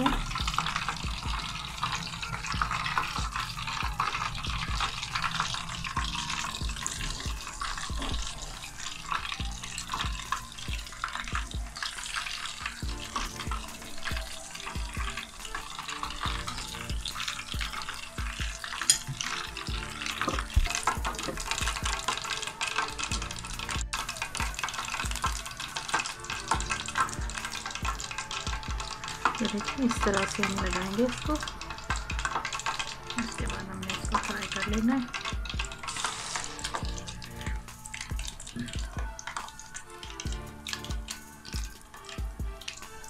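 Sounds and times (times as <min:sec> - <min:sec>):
fish frying in oil: 0:00.0 - 0:43.0
metal tongs clicking on pan: 0:18.8 - 0:19.4.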